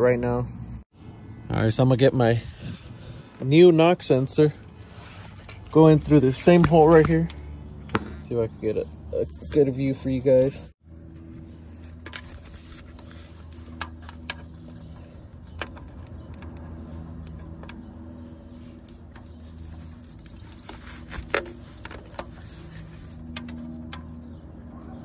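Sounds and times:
metallic clicks and scrapes: 8.7s - 25.0s.

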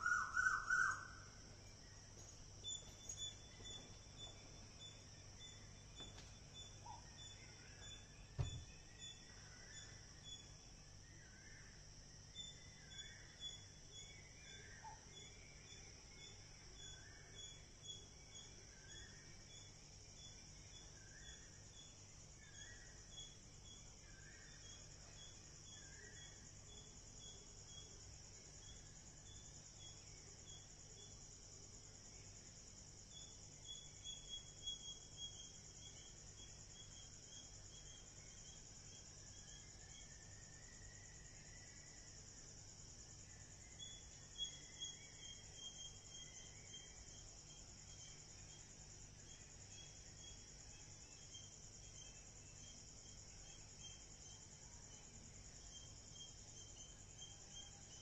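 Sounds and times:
insects chirring: 0.0s - 58.0s
repeated insect chirps: 0.0s - 58.0s.

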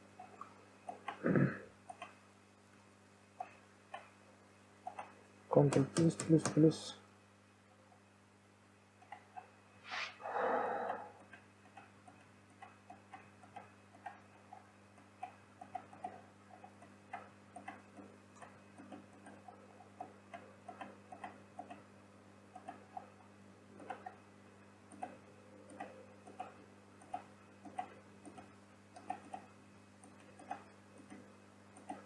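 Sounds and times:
faint steady hum: 0.0s - 32.0s
computer mouse clicks: 1.9s - 2.2s, 4.8s - 6.6s, 10.8s - 21.9s, 22.5s - 23.1s, 23.8s - 24.2s, 24.9s - 32.0s.

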